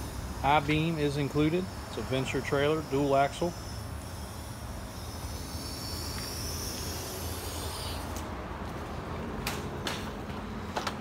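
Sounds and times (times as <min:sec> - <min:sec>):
insects buzzing: 0:00.0 - 0:08.7.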